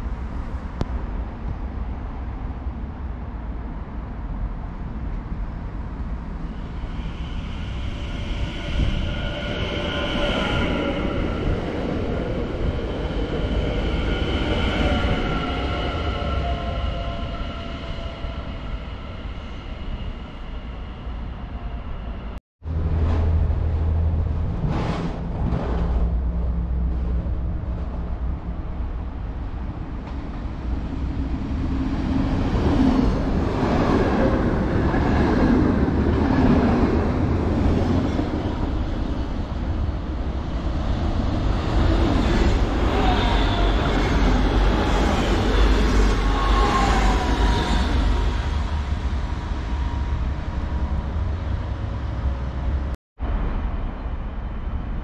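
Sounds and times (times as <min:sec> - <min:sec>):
electric train whine: 0:05.5 - 0:22.4.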